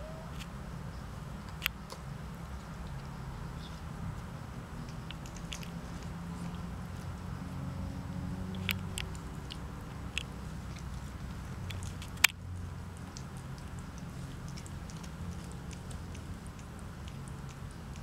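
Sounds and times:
cats clicking and smacking: 0:04.8 - 0:07.2, 0:08.5 - 0:18.0.

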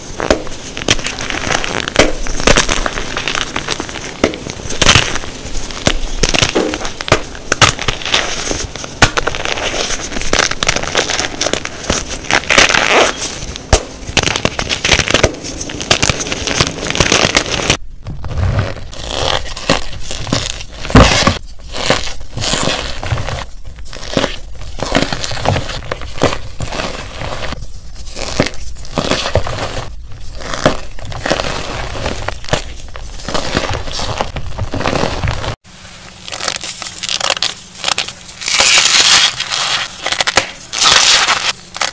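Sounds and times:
hands crushing chalk blocks: 0:00.0 - 0:35.6, 0:36.3 - 0:41.9.

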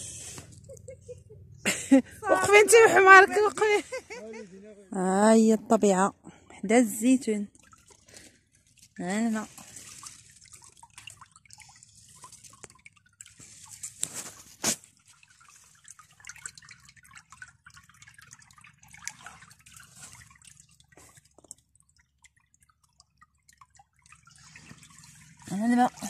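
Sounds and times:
water dripping: 0:05.0 - 0:26.0.

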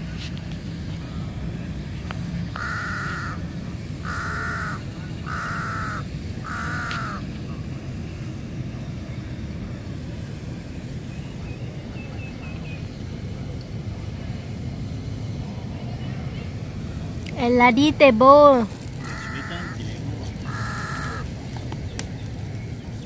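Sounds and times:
crow cawing: 0:02.6 - 0:03.4, 0:04.0 - 0:07.2, 0:19.0 - 0:21.3.

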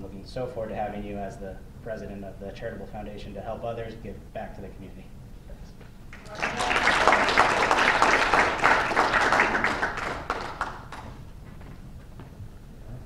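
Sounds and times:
small audience applauding: 0:06.1 - 0:11.3.

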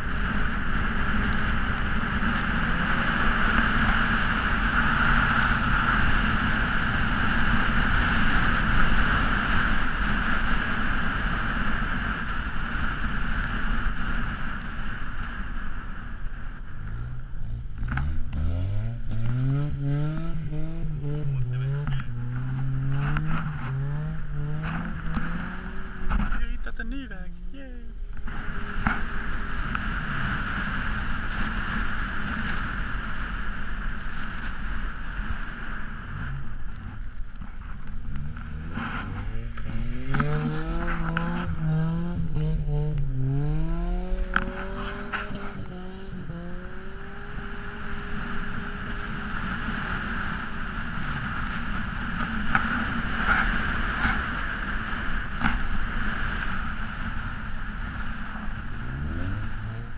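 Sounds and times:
car engine and tyres on snow: 0:00.0 - 0:59.9
engine revving: 0:16.8 - 0:26.8, 0:38.0 - 0:59.9.

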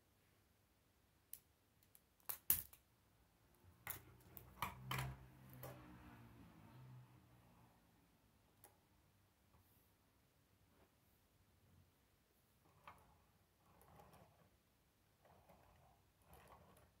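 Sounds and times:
plastic pieces clicking together: 0:01.3 - 0:02.8.

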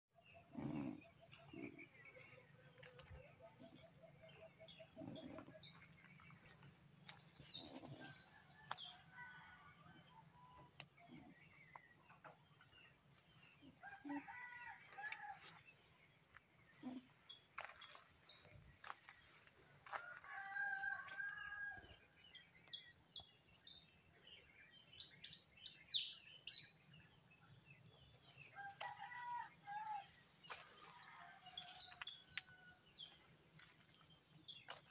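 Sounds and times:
rooster crowing: 0:13.8 - 0:15.3, 0:19.9 - 0:21.9, 0:28.5 - 0:30.0.

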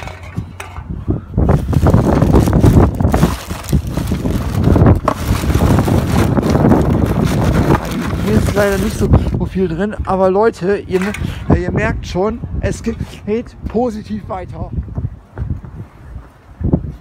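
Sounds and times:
wind noise on microphone: 0:00.0 - 0:17.0
plastic bag rustling: 0:01.5 - 0:09.1.

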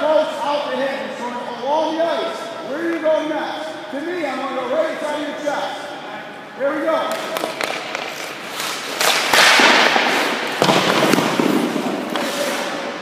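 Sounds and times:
stick clacking on puck: 0:07.1 - 0:12.7
skate blades scraping ice: 0:07.1 - 0:13.0.

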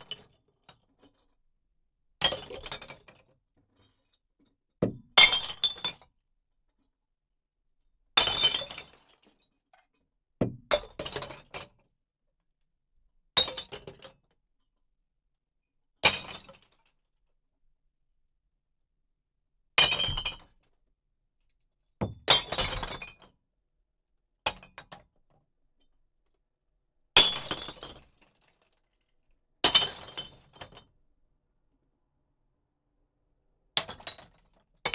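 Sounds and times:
glass bottles crashing into bin: 0:08.2 - 0:09.5, 0:27.2 - 0:28.8, 0:29.6 - 0:30.9.

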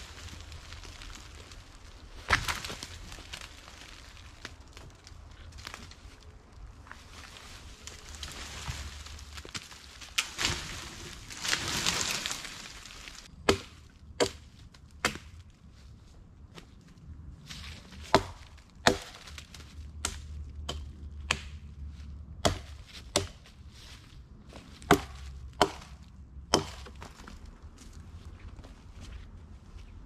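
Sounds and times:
hatchet chopping wood: 0:13.4 - 0:15.3, 0:18.0 - 0:19.3, 0:20.0 - 0:21.6, 0:22.4 - 0:23.4, 0:24.8 - 0:27.1.

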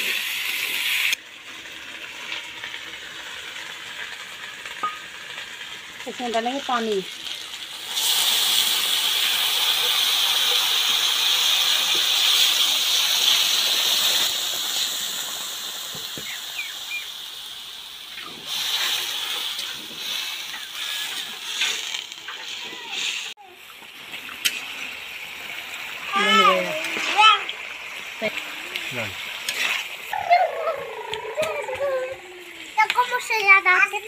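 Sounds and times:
water hissing in hot oil: 0:00.0 - 0:34.0
metal ladle scraping wok: 0:29.4 - 0:30.0.

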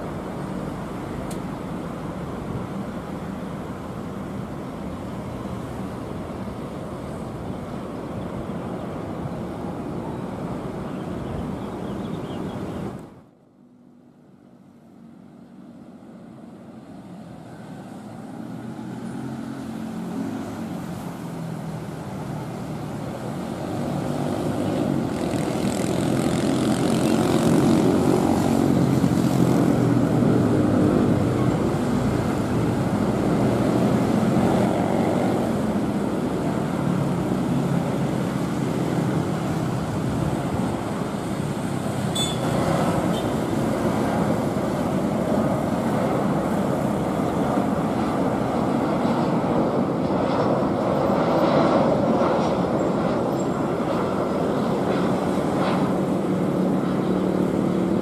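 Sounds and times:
jet engines rumbling: 0:00.0 - 0:58.0.

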